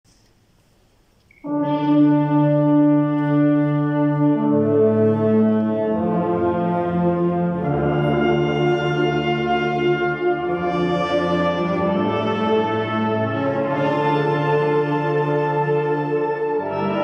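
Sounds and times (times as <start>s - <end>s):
wind band playing a funeral march: 1.4s - 17.0s.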